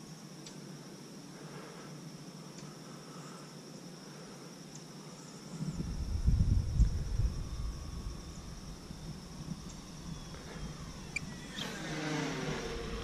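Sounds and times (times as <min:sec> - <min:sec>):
insects chirring: 0:00.0 - 0:13.0
wind buffeting microphone: 0:05.6 - 0:11.9.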